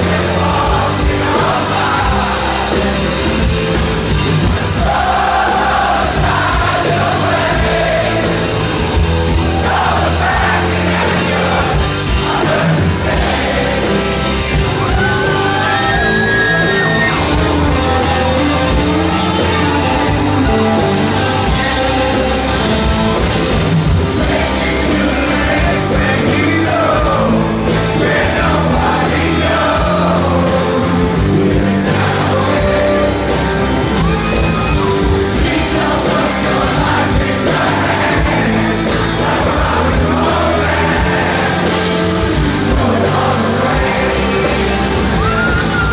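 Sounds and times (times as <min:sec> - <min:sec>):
live rock band playing: 0:00.0 - 0:45.9
man singing lead vocal: 0:09.6 - 0:23.2, 0:24.1 - 0:33.8, 0:35.3 - 0:45.9.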